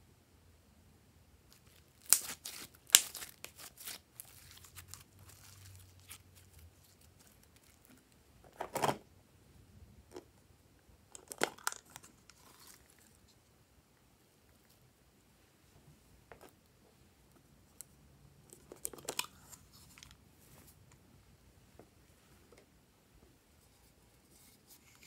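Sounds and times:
slime squelching and crackling: 1.5s - 8.0s.

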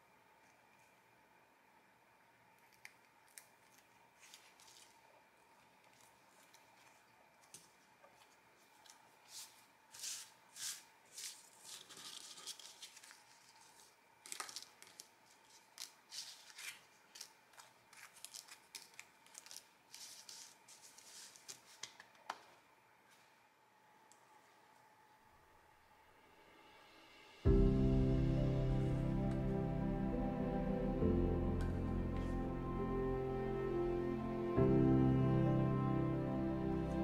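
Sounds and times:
paper rustles and taps: 5.9s - 22.6s.

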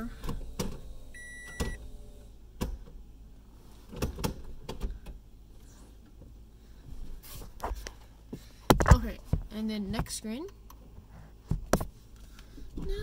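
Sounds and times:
car cabin chime beep: 1.1s - 1.8s.

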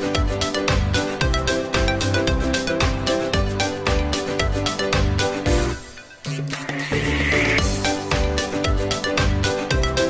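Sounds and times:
music with a steady beat: 0.0s - 10.0s.

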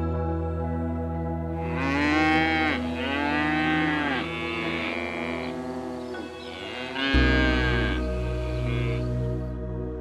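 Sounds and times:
cattle mooing: 1.6s - 9.3s.

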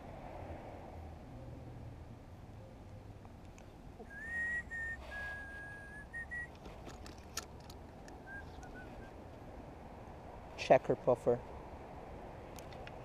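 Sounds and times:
whistle of held notes: 4.0s - 6.5s, 8.2s - 9.1s.

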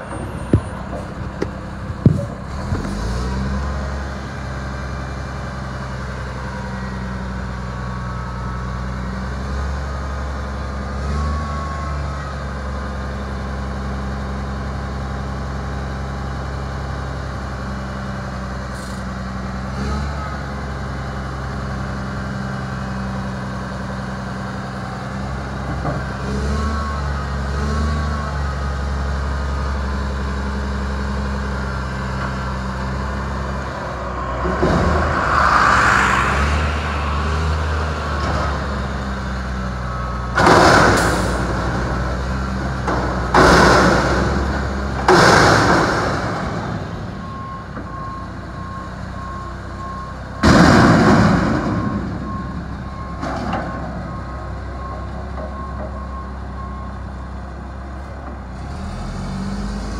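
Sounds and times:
garbage truck diesel engine: 0.0s - 59.9s
reversing alarm beeping: 31.8s - 40.4s, 46.8s - 57.9s.

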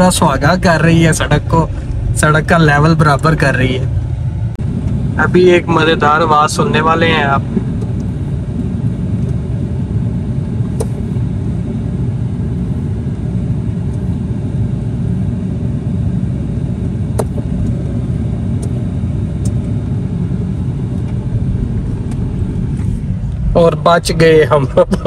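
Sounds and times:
car tyre rumble on bumpy road: 0.0s - 9.5s, 20.7s - 25.0s.

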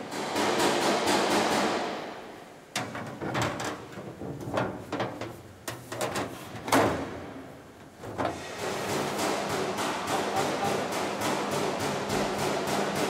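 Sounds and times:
metal panel knocks and clanks: 2.7s - 7.3s.

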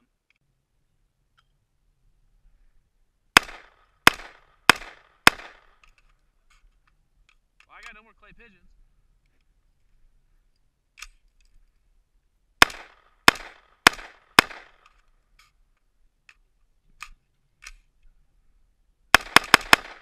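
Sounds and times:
rifle shots: 3.4s - 5.8s, 12.6s - 15.0s, 19.1s - 20.0s
fainter sharp cracks: 3.4s - 6.2s, 12.6s - 15.6s, 19.2s - 20.0s.

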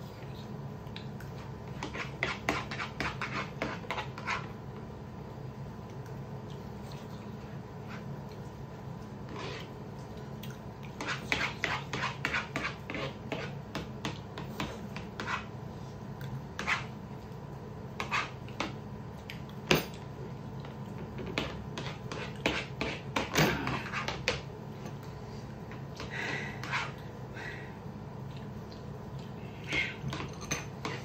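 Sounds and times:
metal spoons clinking on plates: 30.1s - 31.0s.

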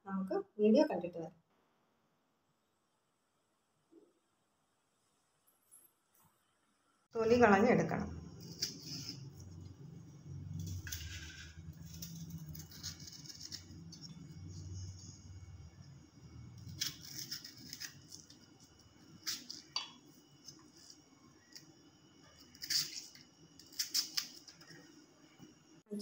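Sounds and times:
low hum: 7.1s - 19.3s
knife scraping and clicking: 8.4s - 9.3s, 10.6s - 14.6s, 16.6s - 18.4s, 22.4s - 24.5s.

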